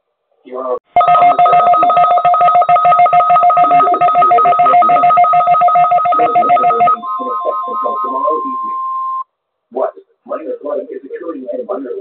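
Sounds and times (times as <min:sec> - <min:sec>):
two-tone alert signal: 0:01.0 - 0:09.2.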